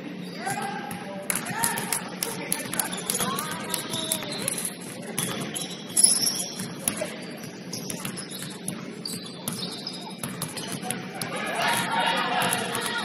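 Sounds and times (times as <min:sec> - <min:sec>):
shoes squeaking on gym floor: 0:02.6 - 0:10.9.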